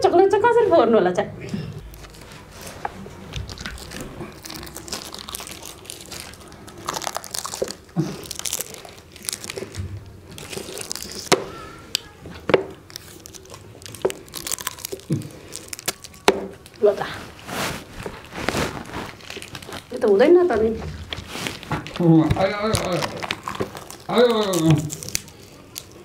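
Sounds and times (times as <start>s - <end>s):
plastic wrappers crinkling: 1.6s - 26.0s.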